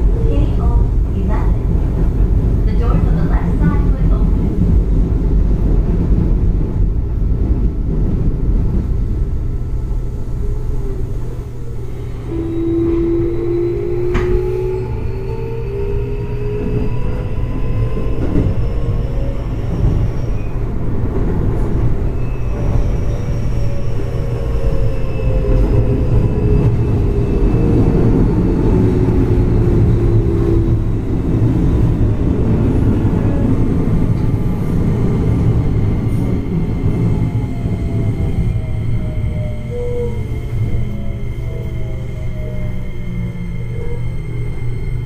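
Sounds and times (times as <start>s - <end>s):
wheel-on-rail rumble: 0.0s - 45.0s
traction motor whine: 10.9s - 20.2s.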